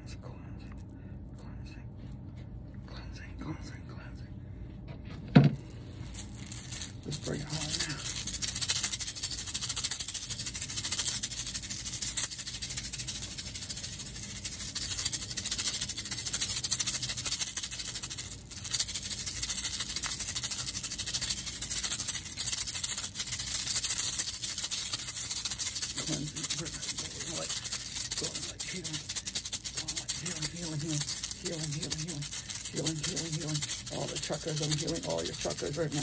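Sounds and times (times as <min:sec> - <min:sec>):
hand rattle shaking: 0:05.6 - 0:36.0.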